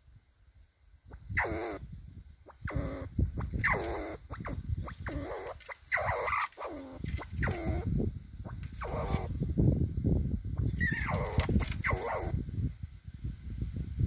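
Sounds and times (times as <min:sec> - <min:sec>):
squirrels squealing: 0:01.1 - 0:01.8, 0:02.5 - 0:07.9, 0:08.5 - 0:09.4, 0:10.6 - 0:12.4.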